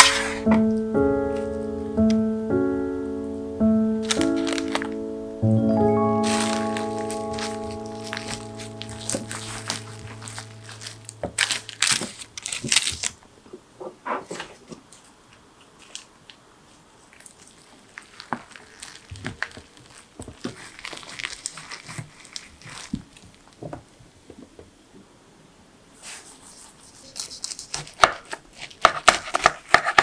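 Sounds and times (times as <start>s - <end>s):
seaweed sheet crinkling: 4.0s - 5.2s, 6.0s - 13.2s, 15.7s - 23.6s
bamboo mat rustling: 6.4s - 13.1s.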